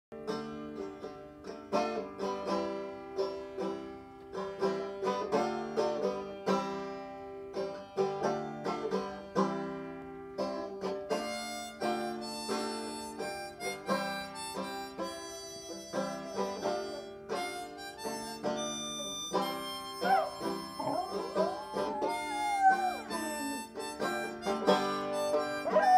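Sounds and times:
plucked banjo: 0:00.1 - 0:25.9
harmonica notes: 0:01.7 - 0:25.9
dog howling: 0:20.0 - 0:23.8, 0:25.6 - 0:25.9.

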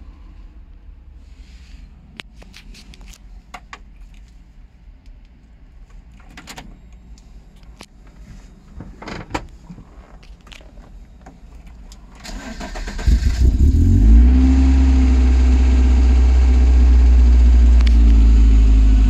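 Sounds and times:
ignition key clatter: 0:06.1 - 0:06.8.

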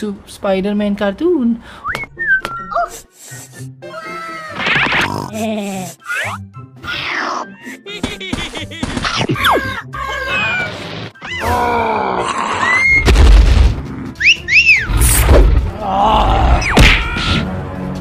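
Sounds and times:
cartoon music: 0:06.0 - 0:11.4, 0:14.2 - 0:15.0
cartoon voices yelling and grunting: 0:09.2 - 0:13.0, 0:15.7 - 0:17.4.

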